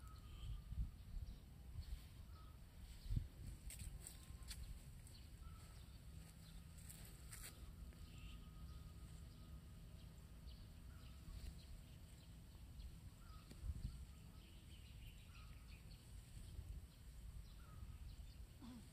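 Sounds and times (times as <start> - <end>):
faint bird chirps: 0.0 - 18.9.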